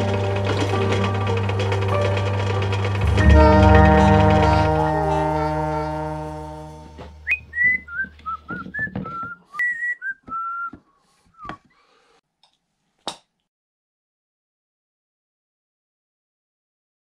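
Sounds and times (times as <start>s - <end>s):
background music: 0.0s - 7.4s
person whistling a tune: 7.2s - 11.6s
wooden tool handles knocking: 7.6s - 10.4s.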